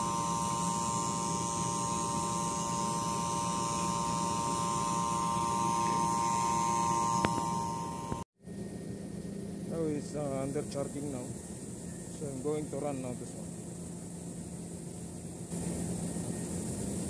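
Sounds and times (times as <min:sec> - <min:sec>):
machine hum with high whine: 0:00.0 - 0:17.0.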